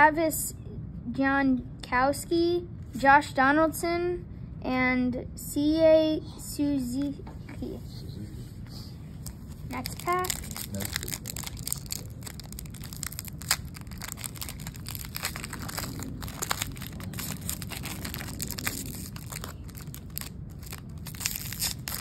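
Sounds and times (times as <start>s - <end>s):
plastic wrapper crinkling and tearing: 9.2s - 22.0s.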